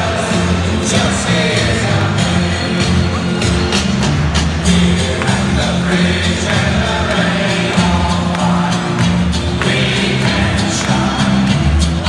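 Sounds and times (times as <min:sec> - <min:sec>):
crowd singing along: 0:00.0 - 0:12.0
upbeat music over pa: 0:00.0 - 0:12.0.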